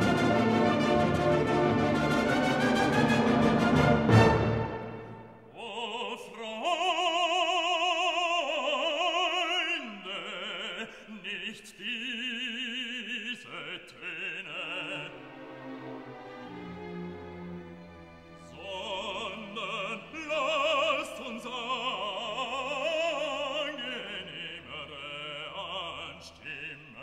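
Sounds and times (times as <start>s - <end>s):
orchestral passage: 0.0s - 5.5s, 15.0s - 19.9s
opera singer with wide vibrato: 5.5s - 15.5s, 18.4s - 27.0s.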